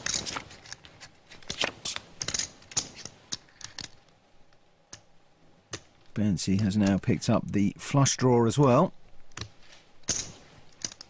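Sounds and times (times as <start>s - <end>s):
poker chips clicking: 1.4s - 4.0s.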